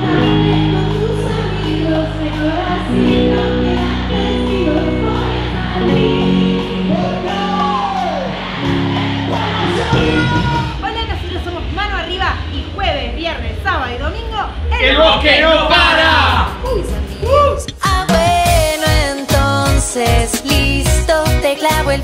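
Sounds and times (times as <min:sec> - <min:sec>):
woman singing: 0:00.0 - 0:07.3, 0:16.7 - 0:22.0
keyboard chords: 0:00.0 - 0:10.8
live band music: 0:00.0 - 0:11.8, 0:14.9 - 0:22.0
bass: 0:00.0 - 0:22.0.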